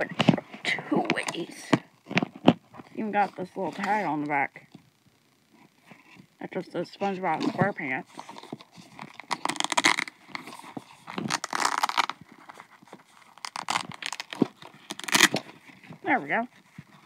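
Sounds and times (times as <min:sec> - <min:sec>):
wallet fastening clicking rasps: 0:09.2 - 0:10.1, 0:11.3 - 0:12.1, 0:13.4 - 0:15.4.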